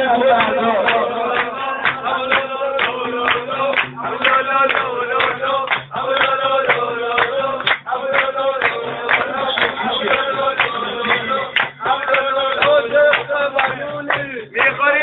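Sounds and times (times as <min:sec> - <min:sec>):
man chanting: 0:00.0 - 0:15.0
music: 0:00.0 - 0:15.0
sharp rhythmic strikes: 0:00.0 - 0:15.0.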